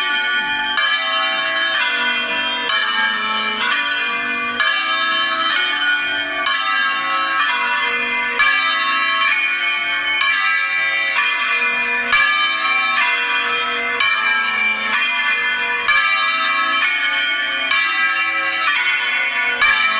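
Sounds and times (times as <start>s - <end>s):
church bells ringing: 0.0s - 19.9s.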